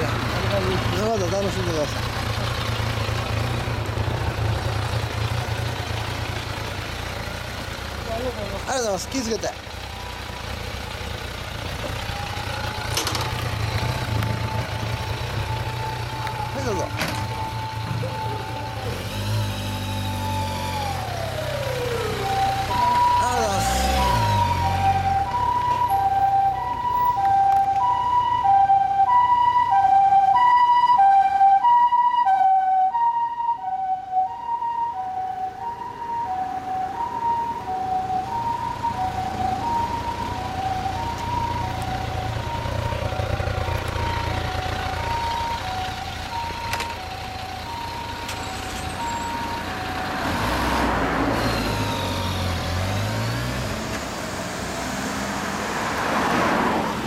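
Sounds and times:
ambulance two-tone siren: 0:08.2 - 0:10.8, 0:11.8 - 0:54.6.

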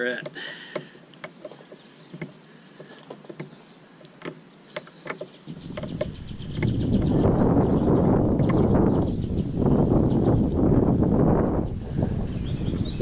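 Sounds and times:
wind buffeting microphone: 0:05.4 - 0:13.0.

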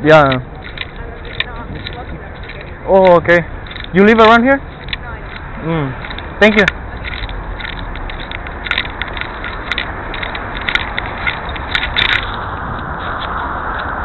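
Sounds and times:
city street traffic: 0:00.0 - 0:14.0.

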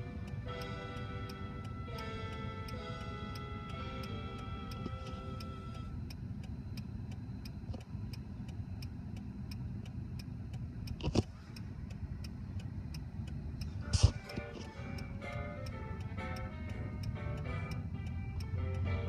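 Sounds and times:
low engine and traffic rumble: 0:00.0 - 0:19.0
turn signal ticking: 0:00.0 - 0:19.0.

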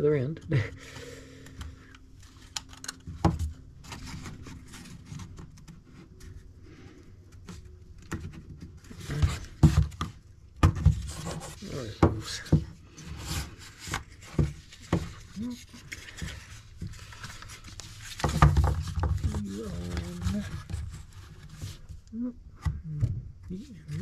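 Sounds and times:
wood rubbing on wood: 0:03.8 - 0:22.1
clicks and knocks of wooden parts: 0:13.8 - 0:19.5.

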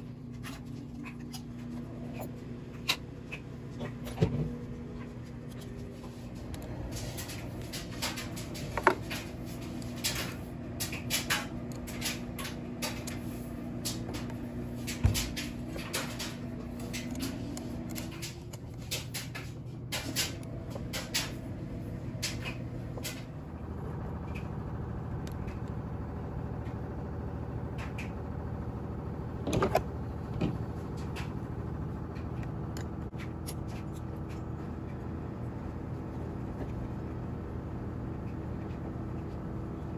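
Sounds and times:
steady background hum: 0:00.0 - 0:39.9.

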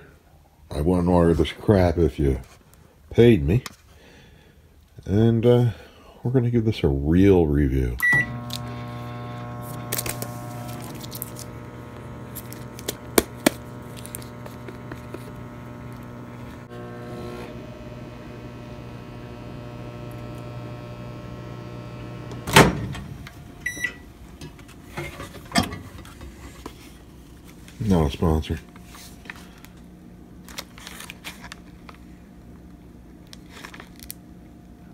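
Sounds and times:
microwave oven humming: 0:08.0 - 0:34.9
microwave door clunk: 0:22.4 - 0:23.2
short beep: 0:23.6 - 0:24.0.

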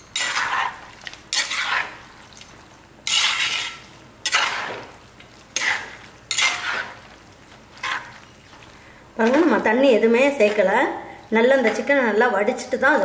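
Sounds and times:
metal spatula scraping clay pot: 0:00.0 - 0:02.0, 0:03.0 - 0:07.0, 0:07.7 - 0:08.4
faint frying sizzle: 0:00.0 - 0:13.0.

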